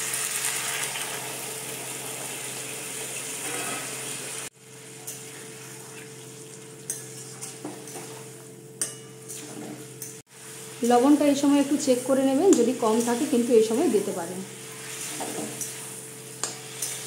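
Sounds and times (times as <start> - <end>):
vegetables sizzling in a pan: 0.0 - 8.5, 9.2 - 17.0
metal spatula scraping a pan: 3.4 - 4.1, 6.9 - 10.2, 12.5 - 17.0.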